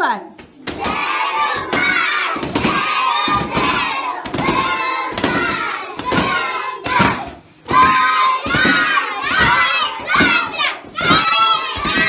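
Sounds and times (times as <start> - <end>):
children shouting in unison: 0.8 - 12.0.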